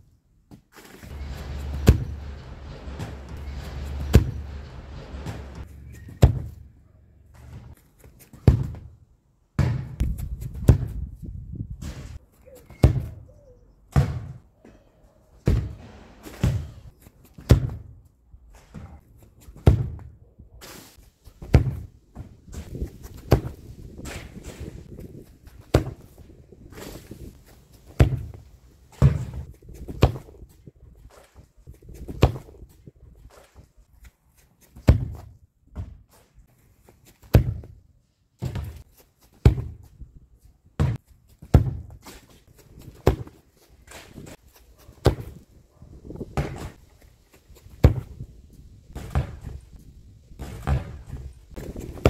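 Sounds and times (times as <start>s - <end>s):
football kicked with thuds: 6.2s - 6.6s, 8.3s - 9.0s, 9.6s - 11.1s, 12.8s - 13.2s, 13.9s - 14.4s, 15.4s - 18.0s, 19.6s - 20.2s, 21.4s - 25.0s, 25.6s - 26.2s, 28.0s - 28.4s, 29.0s - 30.4s, 31.9s - 32.7s, 34.8s - 36.0s, 37.3s - 37.8s, 38.4s - 39.9s, 40.8s - 42.1s, 42.9s - 44.0s, 45.0s - 45.4s, 46.2s - 46.8s, 47.7s - 48.2s, 48.9s - 49.7s, 50.4s - 52.0s
ball landing: 50.4s - 52.0s.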